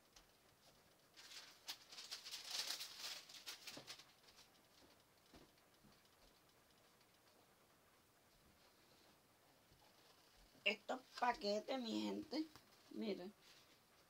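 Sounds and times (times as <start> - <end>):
packaging crinkling: 1.1 - 5.0.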